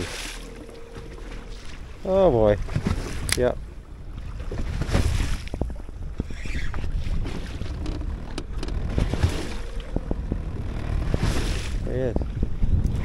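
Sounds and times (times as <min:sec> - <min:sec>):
wind buffeting microphone: 0:00.0 - 0:13.0
water slapping against boat hull: 0:02.6 - 0:03.6, 0:04.2 - 0:13.0.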